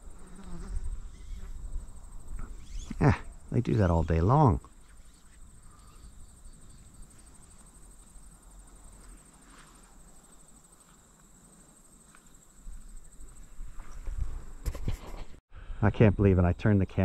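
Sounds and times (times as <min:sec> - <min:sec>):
high insect trill: 0:00.0 - 0:15.2.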